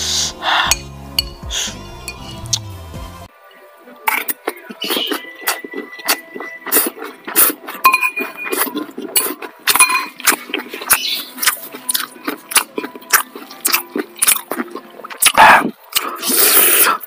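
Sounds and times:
metal spoon clinking on bowl: 0.7 - 1.4, 2.1 - 2.4, 7.8 - 8.6, 9.7 - 10.2
wet chewing and mouth clicks: 4.1 - 17.0.

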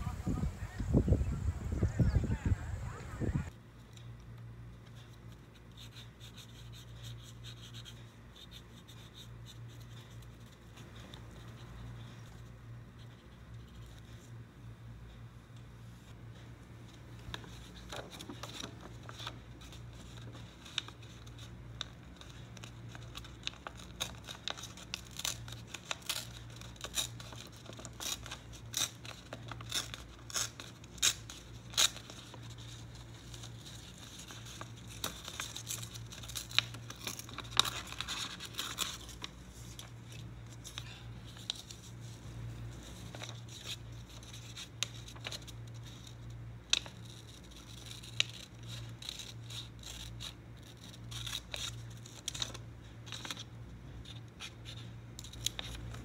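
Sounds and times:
paper crinkling and tearing: 17.3 - 56.0.

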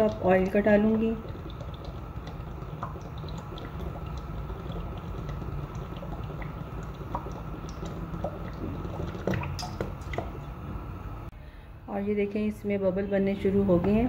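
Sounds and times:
oil trickling into pan: 0.0 - 10.7.

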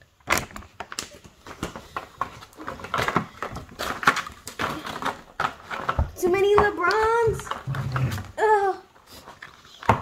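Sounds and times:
packaging crackling and rustling: 0.0 - 10.0.

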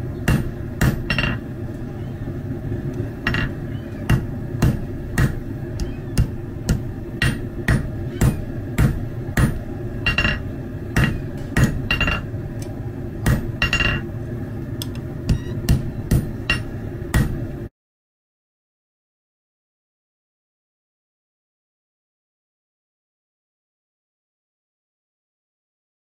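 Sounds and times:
hammer striking steel on anvil: 0.2 - 1.4, 3.2 - 14.0, 15.3 - 17.4.

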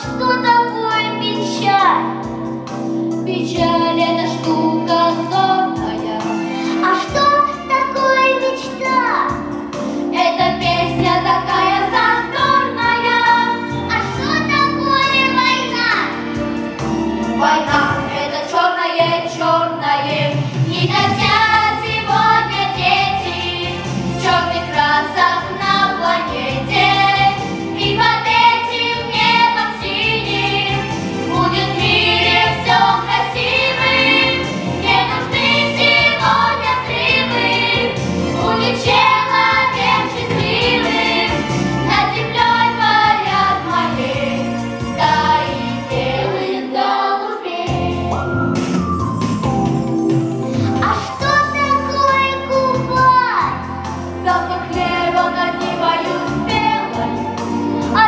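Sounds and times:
instrumental accompaniment with bass: 0.0 - 18.4, 19.0 - 46.5, 47.6 - 58.0
children singing together: 20.8 - 48.1, 54.2 - 57.2.

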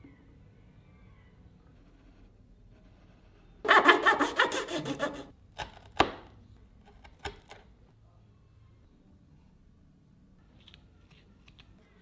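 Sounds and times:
hand saw cutting wood: 3.7 - 5.3.

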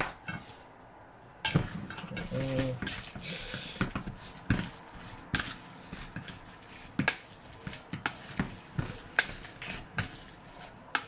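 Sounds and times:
wet squelches of mixing meat: 1.2 - 11.0.

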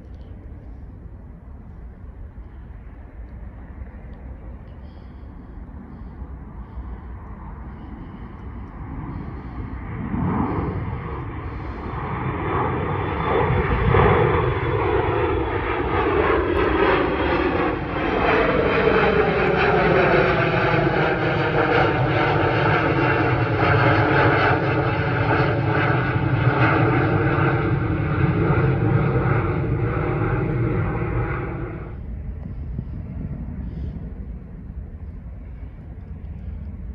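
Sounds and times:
jet engines roaring on takeoff: 0.0 - 36.9.

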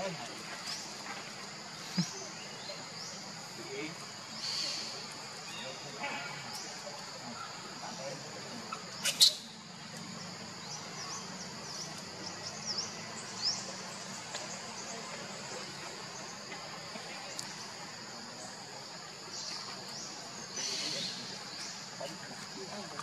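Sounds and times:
insect chorus drone: 0.0 - 23.0.

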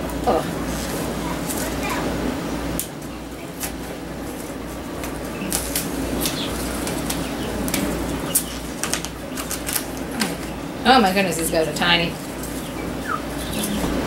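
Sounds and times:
steady low hum: 0.0 - 14.0
hands rustling seed packet: 3.6 - 10.5.

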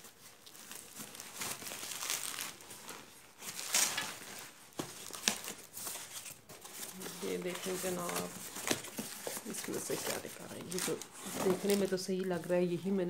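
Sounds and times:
cardboard rustling: 0.0 - 12.6
bubble wrap crinkling: 0.0 - 13.0.

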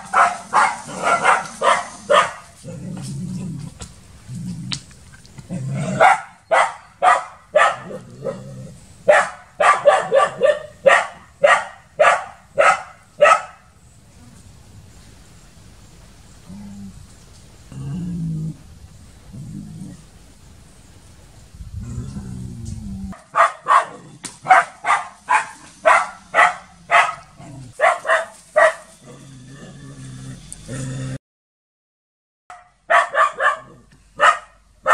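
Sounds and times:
dog barking: 0.0 - 2.5, 5.8 - 8.4, 9.0 - 13.7, 23.2 - 28.9, 32.5 - 34.9.

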